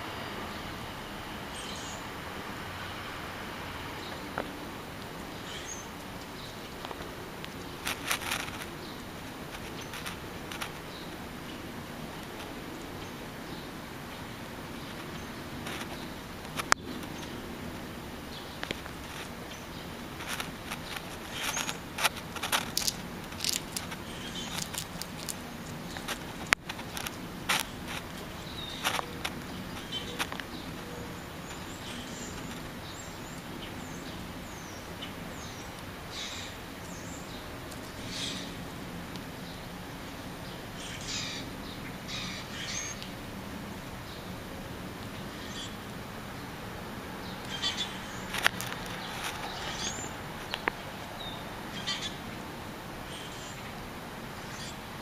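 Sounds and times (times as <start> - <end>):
background hiss and hum: 0.0 - 55.0
scratchy clicks: 20.2 - 30.5
squirrel cracking peanut shell: 20.2 - 30.5, 48.3 - 49.6.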